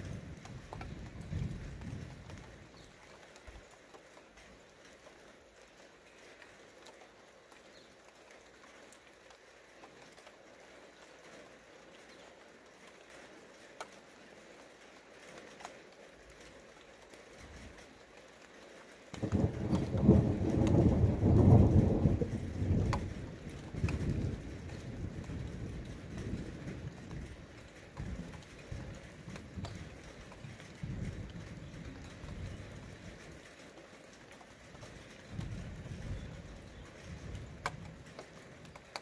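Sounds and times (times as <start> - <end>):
low roll of thunder: 0.0 - 3.0, 19.1 - 33.5, 34.7 - 38.8
drips ticking on leaves: 0.0 - 39.0
light rain pattering: 0.0 - 39.0.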